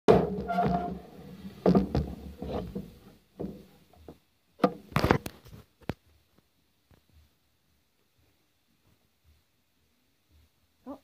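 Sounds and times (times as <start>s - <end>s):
handling knocks and thuds: 0.1s - 5.3s.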